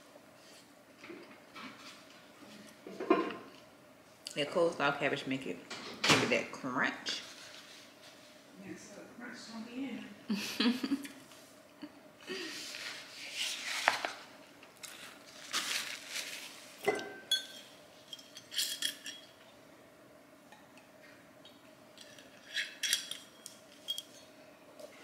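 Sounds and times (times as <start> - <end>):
cutlery clinking against a bowl: 16.8 - 19.4, 22.0 - 24.2.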